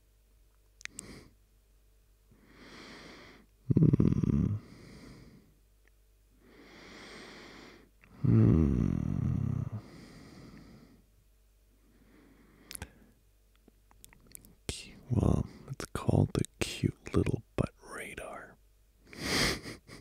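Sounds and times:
man breathing: 2.4s - 3.5s, 4.6s - 5.5s, 6.4s - 8.3s, 9.8s - 11.1s, 11.8s - 13.2s.

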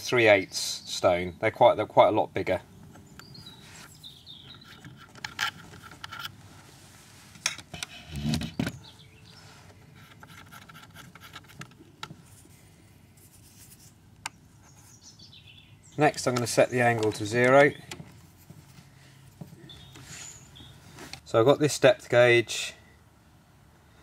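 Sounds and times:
light clicks and scrapes: 3.6s - 12.6s, 16.1s - 21.3s.

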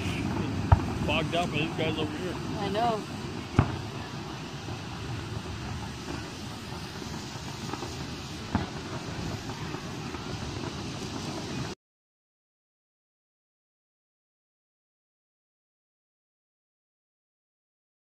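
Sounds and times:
distant fireworks bangs: 0.0s - 11.8s
faint fireworks pops: 0.0s - 11.8s
outdoor background noise: 0.0s - 11.8s.

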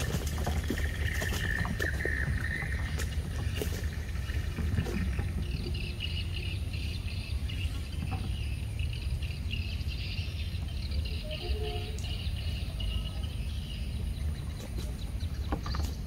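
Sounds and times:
steady low rumble: 0.0s - 11.2s.

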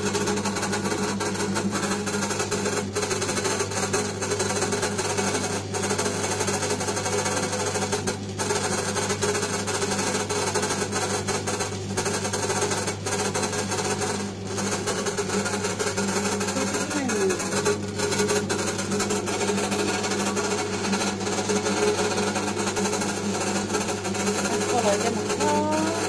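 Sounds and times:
stand mixer motor hum: 0.0s - 26.0s.

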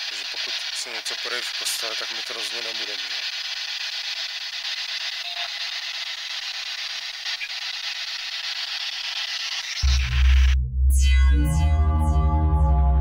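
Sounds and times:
steady hiss: 0.0s - 9.8s.

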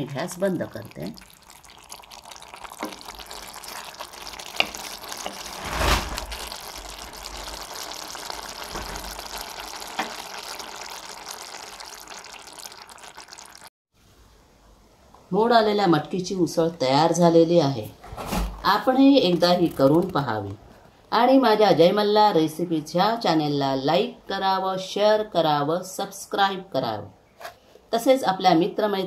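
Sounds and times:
beans sizzling in a pan: 1.0s - 13.7s.

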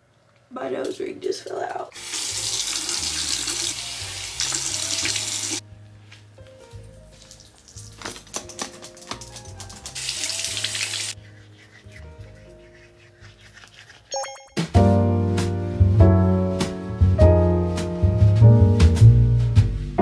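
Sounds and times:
water running: 0.8s - 5.6s, 7.1s - 14.7s
background music with bass: 14.6s - 20.0s.

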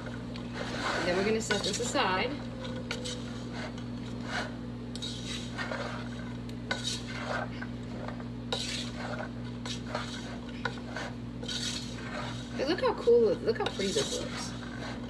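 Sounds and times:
spoon scraping a metal pot: 0.5s - 15.0s.

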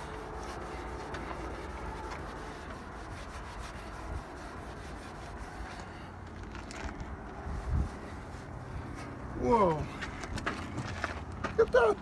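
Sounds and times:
towel scrubbing metal: 0.0s - 6.0s.

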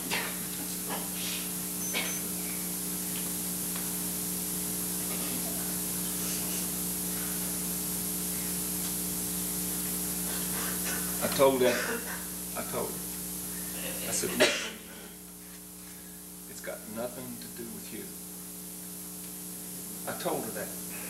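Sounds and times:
recording hiss and electrical hum: 0.0s - 21.0s.

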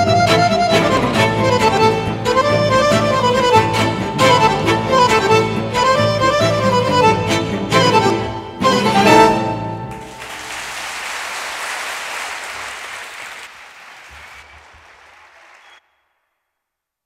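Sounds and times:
bandoneon and string orchestra chord: 0.0s - 10.1s
audience applause: 9.9s - 15.8s.

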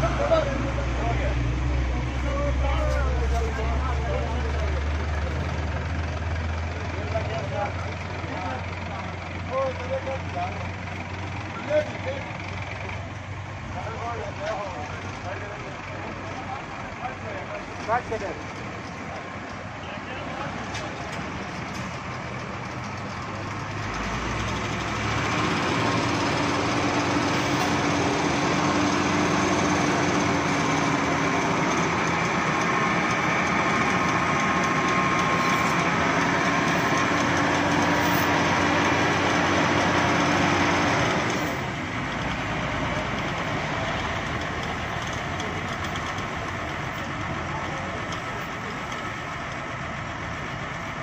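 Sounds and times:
heavy vehicle engine running: 0.0s - 51.0s.

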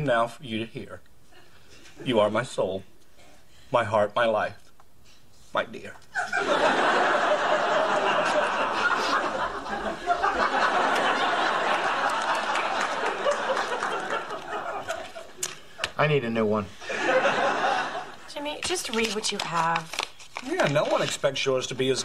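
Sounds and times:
audience laughing: 6.2s - 16.0s, 16.8s - 18.3s.

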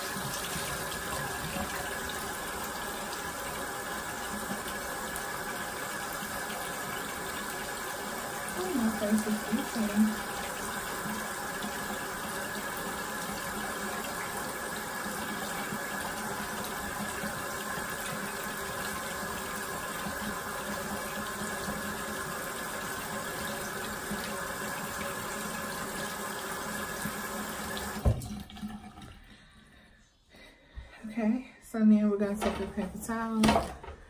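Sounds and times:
sink tap running: 0.0s - 29.2s, 32.3s - 34.0s
face rinsed with washcloth: 0.0s - 29.9s.

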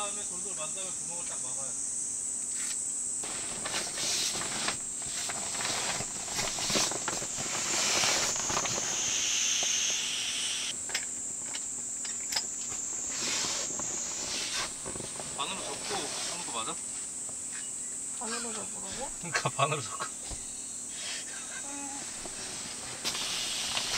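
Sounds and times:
crickets chirping: 0.0s - 23.9s
air hissing out: 2.5s - 10.8s, 12.0s - 16.8s, 20.3s - 23.9s
fabric rustling and crinkling: 3.2s - 9.1s, 22.0s - 23.9s.

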